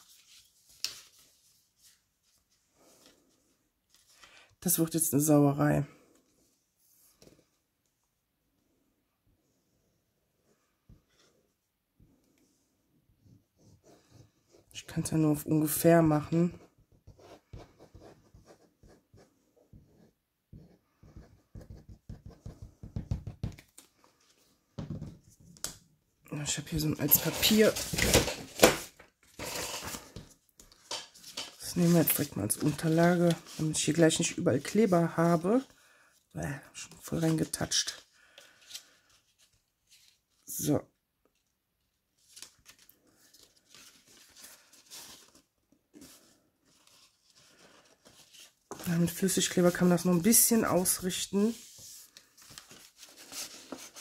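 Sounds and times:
paper rustle: 0.0s - 4.4s, 27.0s - 35.0s, 36.9s - 40.5s, 42.1s - 49.8s, 50.4s - 54.0s.

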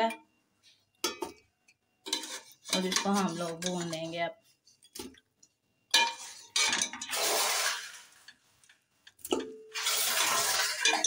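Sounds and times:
metal spoon scraping steel pot: 2.0s - 4.2s, 5.9s - 8.3s, 9.4s - 11.0s.

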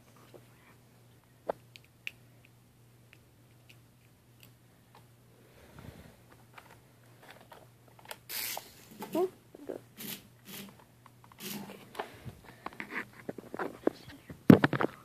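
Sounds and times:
plastic rc transmitter clicks: 8.1s - 8.7s.

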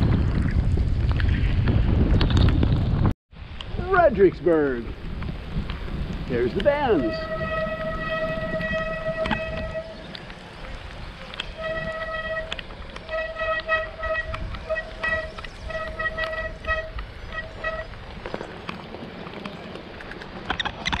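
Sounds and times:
rolling and wind noise: 0.0s - 21.0s
tyres crackling over gravel: 3.6s - 21.0s
bicycle brakes squealing: 6.8s - 18.5s.

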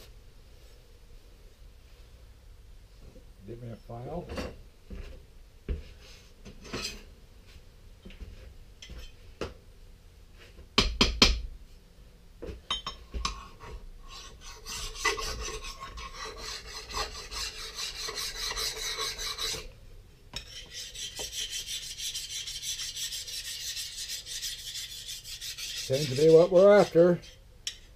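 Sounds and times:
tools knocking and clattering: 12.4s - 13.4s
file rasping on steel blade: 13.4s - 19.7s, 20.4s - 27.8s.

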